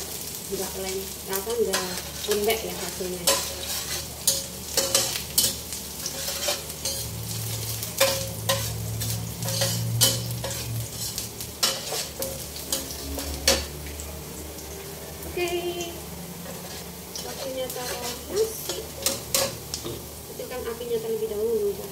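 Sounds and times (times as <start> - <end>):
food sizzling in hot oil: 0.0 - 21.9
metal spatula scraping a wok: 1.6 - 13.8, 16.4 - 19.6.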